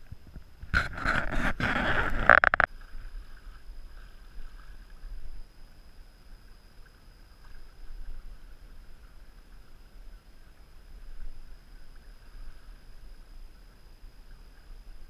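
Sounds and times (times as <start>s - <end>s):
wind noise: 0.0s - 5.4s.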